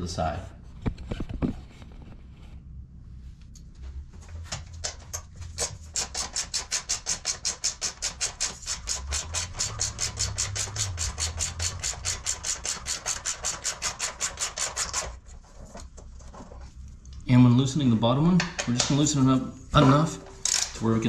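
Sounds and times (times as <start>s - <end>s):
socket ratchet clicking: 4.9s - 15.1s.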